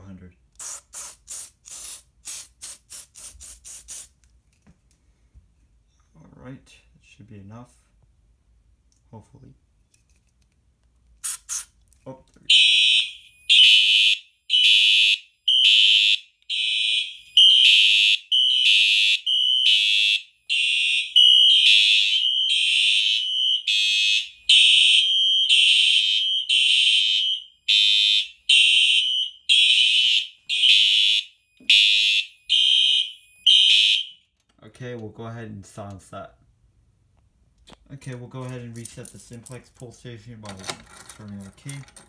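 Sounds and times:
fire alarm horn pulsing: 12.5s - 34.3s.

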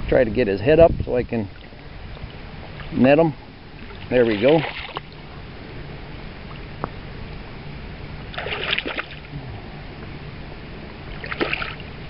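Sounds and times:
river water washing: 1.5s - 12.0s
fish splashing in a net: 3.8s - 5.2s, 8.3s - 9.3s, 11.1s - 11.9s.

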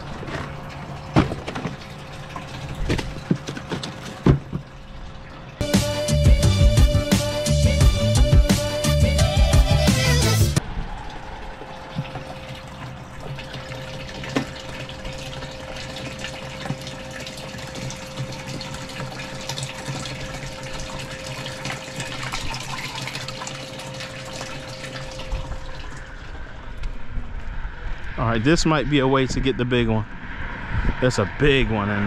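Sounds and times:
water splashing and bubbling: 0.0s - 5.6s, 10.6s - 27.0s
water pump humming: 0.0s - 27.2s.

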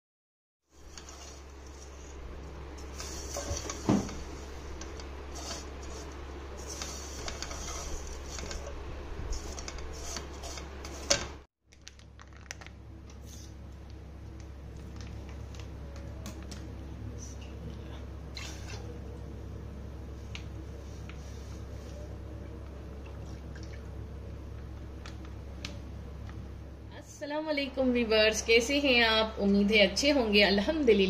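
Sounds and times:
steady low hum: 0.7s - 31.0s
spatula scraping a pan: 0.8s - 2.2s, 2.8s - 11.4s.

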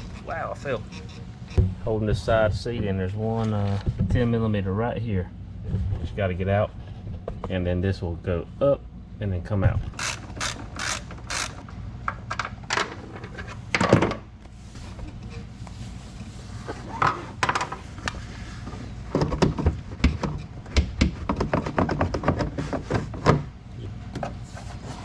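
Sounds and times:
ratchet clicking: 10.0s - 11.6s
knocks and rattles: 19.1s - 23.5s.

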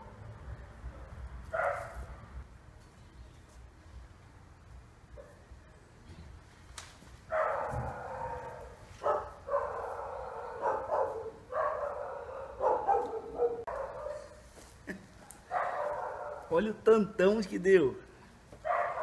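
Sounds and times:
dog barking and yelping: 1.5s - 2.1s, 7.3s - 14.4s, 15.2s - 16.5s, 18.6s - 19.0s.

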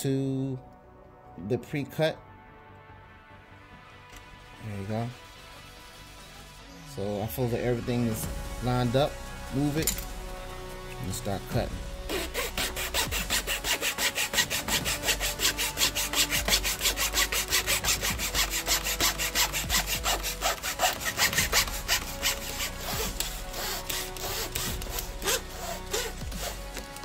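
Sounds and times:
hand saw cutting wood: 11.6s - 27.0s.

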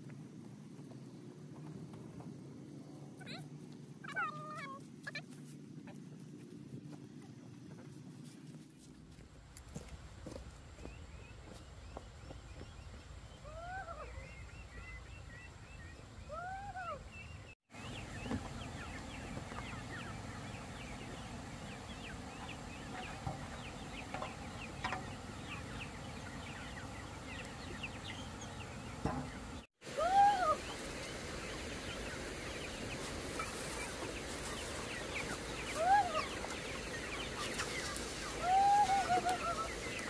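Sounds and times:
chickens clucking and peeping: 10.3s - 40.0s
chicken drawn-out calls: 17.8s - 40.0s.

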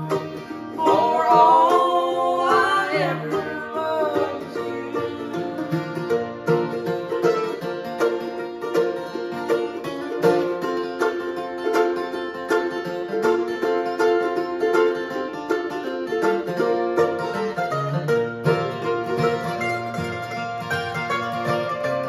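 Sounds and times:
acoustic guitar rhythm: 0.0s - 22.0s
picked mandolin notes: 0.0s - 22.0s.

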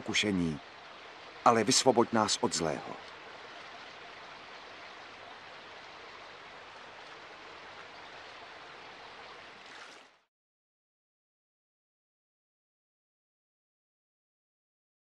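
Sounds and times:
stream running over rocks: 0.0s - 10.3s.

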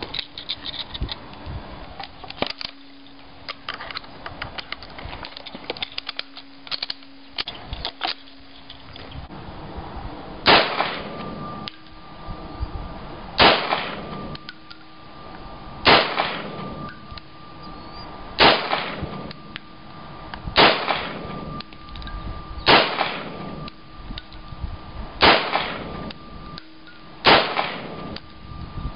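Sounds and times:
pistol shots: 10.5s - 11.2s, 13.4s - 14.2s, 15.8s - 16.7s, 18.4s - 19.1s, 20.6s - 21.3s, 22.7s - 23.5s, 25.2s - 26.0s, 27.2s - 28.2s.

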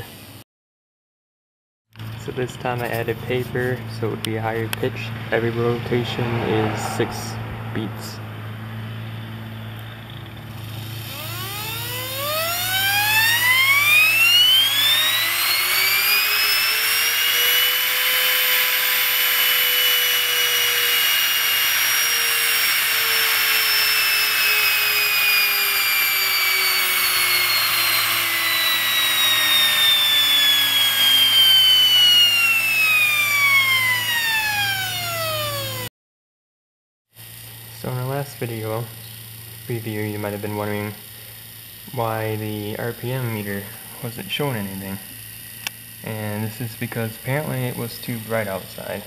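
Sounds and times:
electric motor whine: 4.5s - 35.9s, 39.0s - 49.0s
paper strip buzzing on shaft: 10.5s - 35.9s.

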